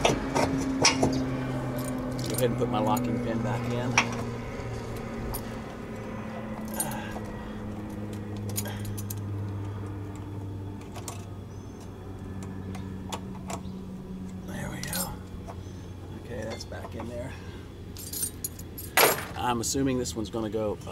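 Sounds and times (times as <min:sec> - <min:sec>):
steady low hum: 0:00.0 - 0:20.9
metal clinks and rattles: 0:00.8 - 0:03.1, 0:03.9 - 0:09.3, 0:14.8 - 0:15.6, 0:17.9 - 0:19.4.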